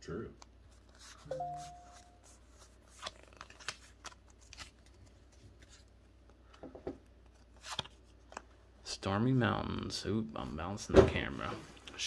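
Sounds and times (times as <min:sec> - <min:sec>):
trading cards being handled: 0:00.4 - 0:06.6.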